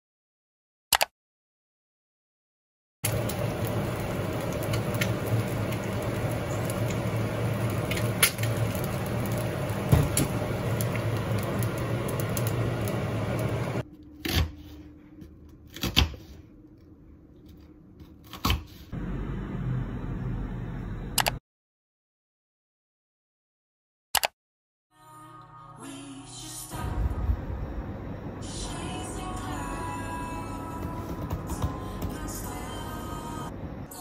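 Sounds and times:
egg sizzling in oil: 0:03.0 - 0:13.8
induction hob hum: 0:03.0 - 0:15.7, 0:18.9 - 0:21.4, 0:26.7 - 0:34.0.

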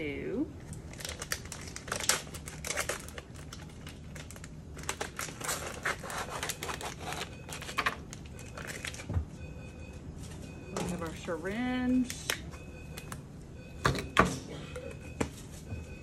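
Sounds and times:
plastic packaging crinkling: 0:00.7 - 0:09.1.

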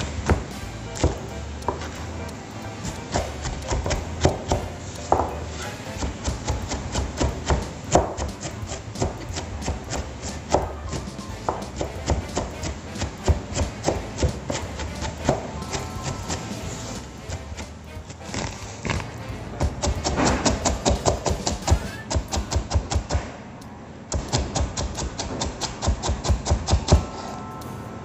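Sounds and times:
background music: 0:00.0 - 0:23.0, 0:26.8 - 0:28.0
knife chopping on cutting board: 0:02.8 - 0:23.2.

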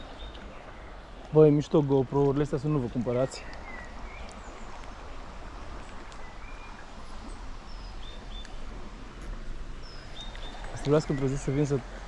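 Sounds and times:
stream water rushing: 0:00.0 - 0:12.0
thin bird chirps: 0:09.8 - 0:11.8.

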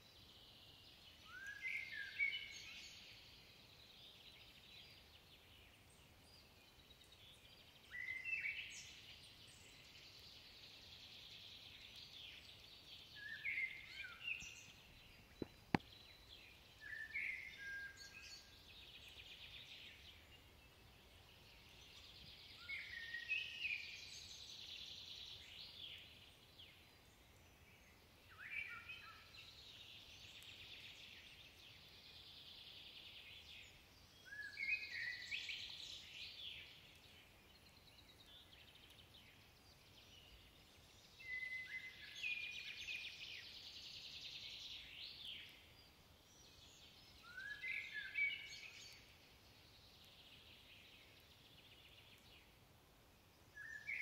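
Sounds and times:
faint blackbird singing: 0:00.0 - 0:54.0.

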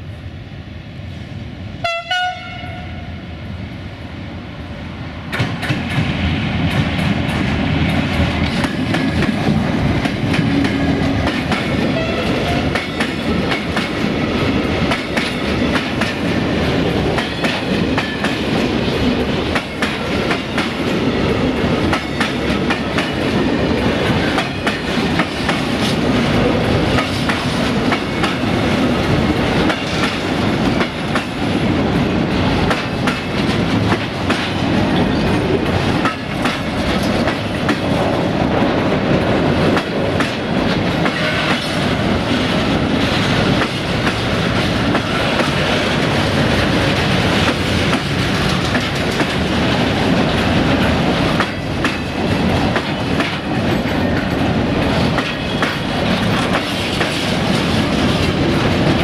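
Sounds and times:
train wagons rumbling past: 0:01.0 - 0:59.0
locomotive horn blast: 0:01.8 - 0:03.1, 0:12.0 - 0:12.7
wheels clacking over rail joints: 0:05.3 - 0:59.0.

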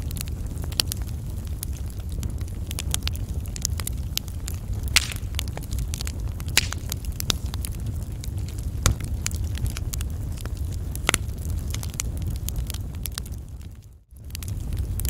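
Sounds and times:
wood fire crackling: 0:00.0 - 0:15.0
low rumble: 0:04.5 - 0:08.6.

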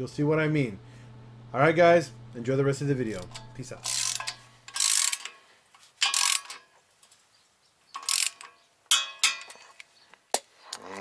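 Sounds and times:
ratchet wrench clicking: 0:03.2 - 0:05.4, 0:06.0 - 0:06.6, 0:08.0 - 0:08.6.

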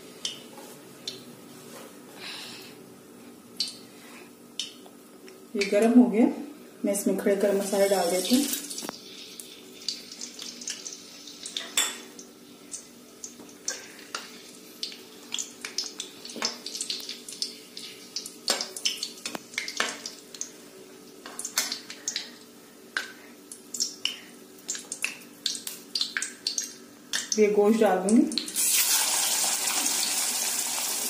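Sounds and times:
faint steady hum: 0:00.0 - 0:28.7
spices frying in hot oil: 0:07.2 - 0:31.0.

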